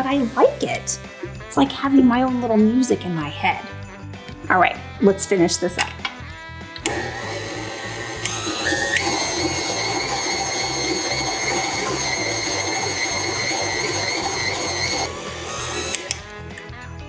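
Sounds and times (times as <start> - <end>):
stand mixer motor whine: 6.8 - 16.3.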